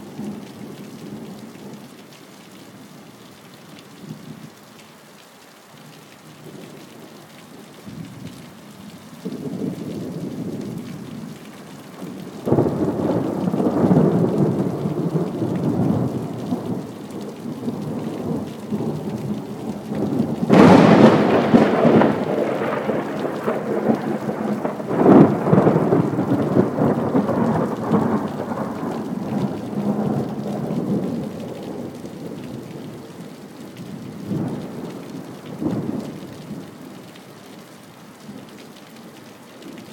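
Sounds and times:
steady rain: 0:00.0 - 0:39.9
thunder rumbling and cracking: 0:12.0 - 0:33.0.

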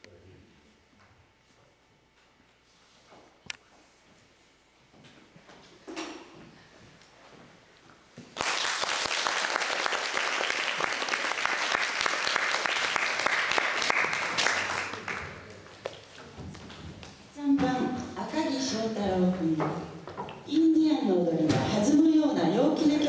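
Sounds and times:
audience applauding: 0:08.4 - 0:15.9.

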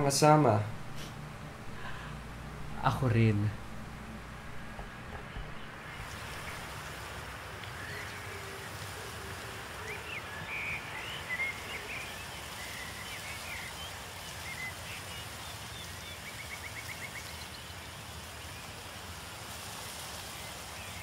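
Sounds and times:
steady low background noise: 0:00.0 - 0:21.0
small birds chirping: 0:04.5 - 0:19.0.

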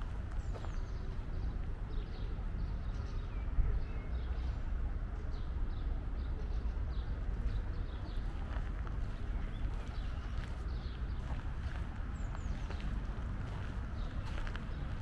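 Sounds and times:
small birds chirping: 0:00.0 - 0:04.6, 0:05.4 - 0:15.0
steady low rumble: 0:07.3 - 0:15.0.

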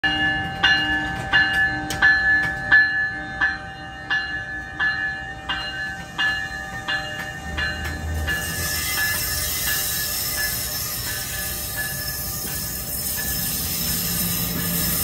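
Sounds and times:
locomotive bell ringing: 0:00.0 - 0:15.0
low rumble of train: 0:00.0 - 0:15.0.

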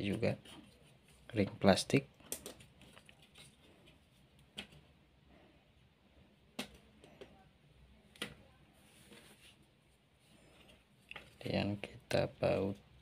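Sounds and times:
light clicks of small plastic parts: 0:02.2 - 0:03.6.

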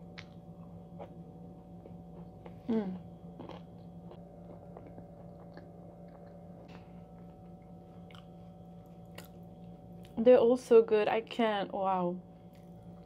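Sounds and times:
person chewing quietly: 0:00.1 - 0:10.2.

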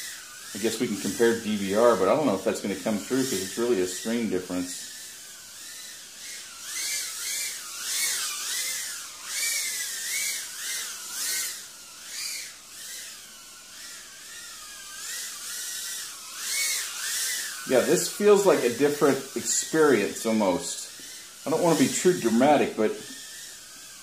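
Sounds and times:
hiss of prop wash: 0:00.0 - 0:05.0, 0:17.6 - 0:23.7
quadcopter motors whining: 0:00.0 - 0:24.0.

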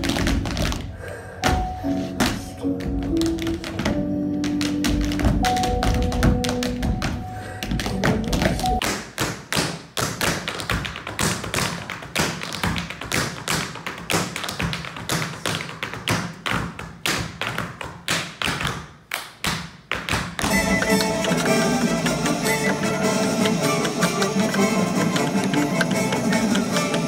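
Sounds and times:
backing music: 0:00.0 - 0:08.8, 0:20.4 - 0:27.0
tap shoes on wooden stage: 0:00.0 - 0:27.0.

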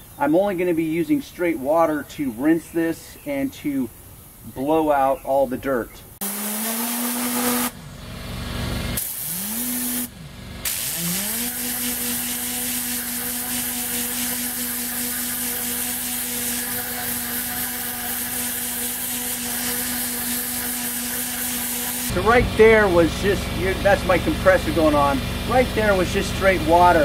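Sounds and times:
air gun blasting hiss: 0:06.2 - 0:07.8, 0:09.0 - 0:22.1
spinning nozzle whir: 0:06.2 - 0:07.8, 0:08.9 - 0:23.2
air compressor running: 0:06.2 - 0:27.0.

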